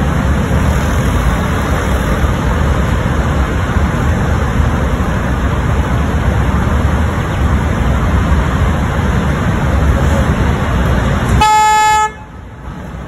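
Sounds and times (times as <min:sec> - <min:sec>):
road traffic rumble: 0:00.0 - 0:13.0
vehicle horn: 0:11.4 - 0:12.4.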